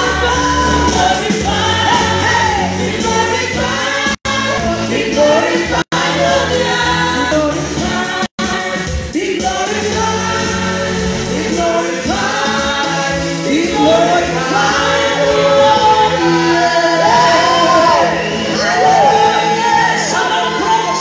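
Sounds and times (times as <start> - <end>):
gospel singing: 0.0 - 21.0.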